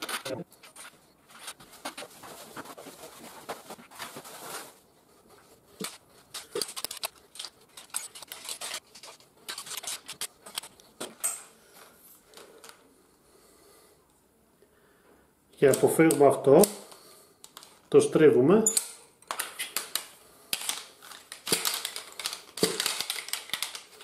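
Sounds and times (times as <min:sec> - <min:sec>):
fabric rustling: 0:00.0 - 0:10.8.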